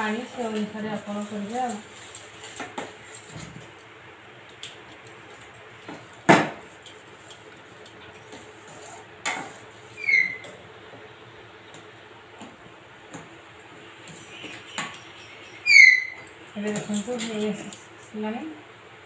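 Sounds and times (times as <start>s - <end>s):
high squeak falling in pitch: 10.0s - 10.5s, 15.6s - 16.2s
metal spoon scraping steel pan: 14.1s - 17.6s.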